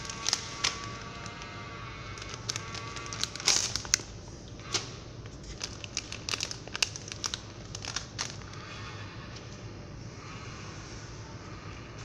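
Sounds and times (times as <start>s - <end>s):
plastic snack pouch crinkling: 0.0s - 1.6s, 2.2s - 4.1s, 5.3s - 8.6s
steady low hum: 0.0s - 12.0s.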